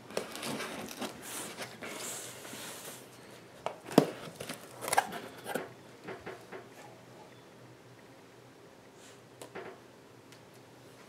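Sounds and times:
cardboard rustling and scraping: 0:00.1 - 0:03.1.

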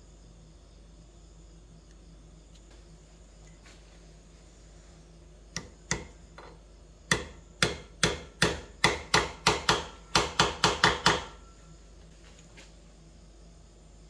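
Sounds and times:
hammer striking metal: 0:07.1 - 0:11.5.

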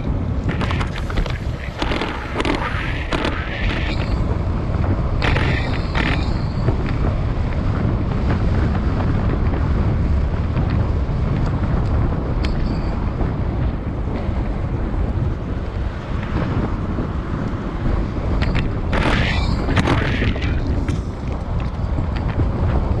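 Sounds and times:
wind buffeting microphone: 0:00.0 - 0:23.0
sharp clicks: 0:00.4 - 0:04.2, 0:05.2 - 0:07.0.

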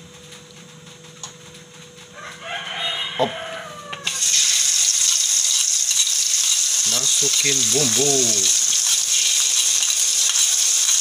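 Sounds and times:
rooster crowing: 0:02.1 - 0:04.4
paste sizzling in hot oil: 0:04.0 - 0:11.0.

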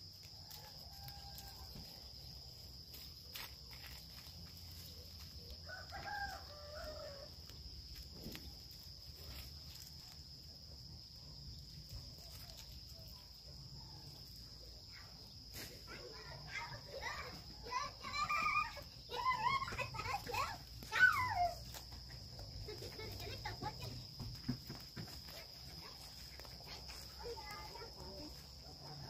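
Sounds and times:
rooster crowing: 0:00.4 - 0:01.9, 0:05.5 - 0:07.5.

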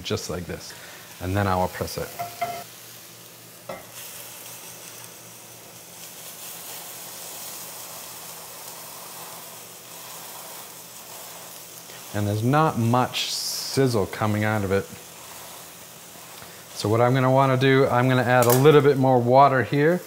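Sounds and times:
mushrooms sizzling in skillet: 0:00.0 - 0:20.0.

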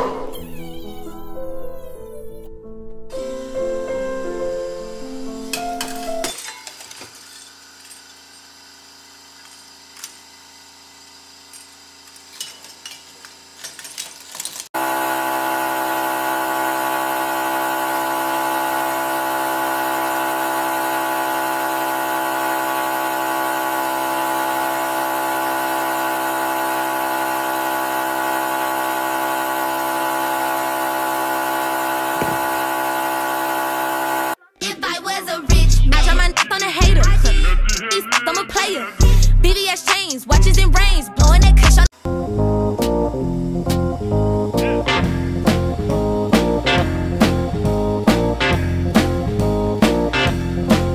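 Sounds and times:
hydraulic pump motor whining: 0:03.1 - 0:34.4.

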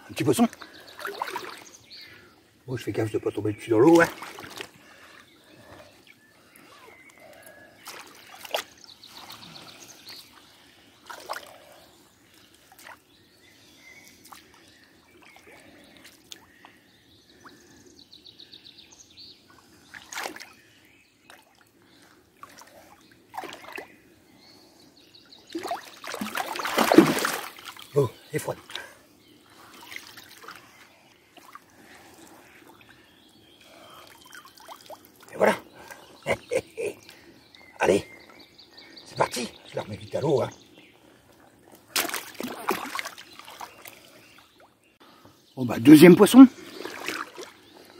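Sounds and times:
water splashing and trickling: 0:00.0 - 0:17.8, 0:19.3 - 0:38.1, 0:38.8 - 0:47.9
faint bird calls: 0:03.2 - 0:41.5.

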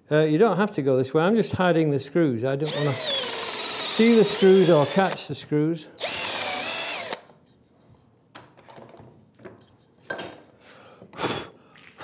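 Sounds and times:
cordless drill boring into wood: 0:02.6 - 0:05.2, 0:06.0 - 0:07.3.

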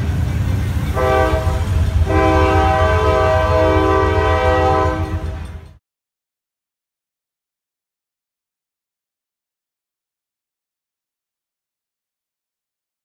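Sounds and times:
train rumbling past: 0:00.0 - 0:05.8
locomotive air horn blasts: 0:00.9 - 0:05.6.

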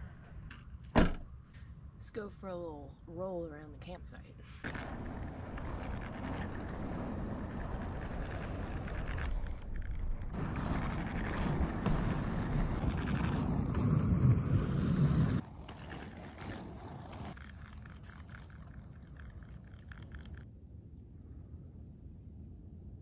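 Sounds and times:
inline skate wheels rolling on asphalt: 0:04.1 - 0:20.5.

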